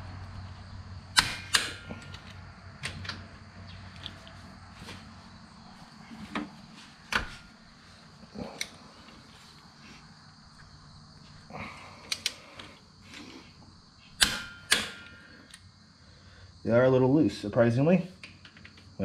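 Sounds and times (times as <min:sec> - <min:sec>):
sharp ringing clicks: 0:14.2 - 0:15.6.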